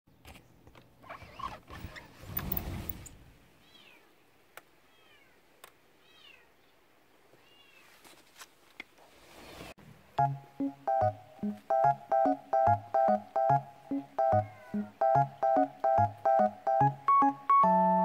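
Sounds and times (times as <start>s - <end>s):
rustling handling noise: 7.7s - 9.8s
kitten meowing: 14.2s - 14.9s.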